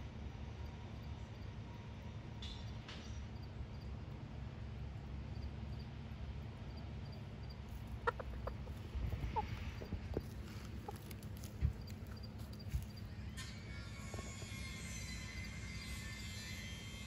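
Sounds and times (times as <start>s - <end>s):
chicken clucking softly: 7.7s - 13.0s
wind rumble on microphone: 8.6s - 10.8s.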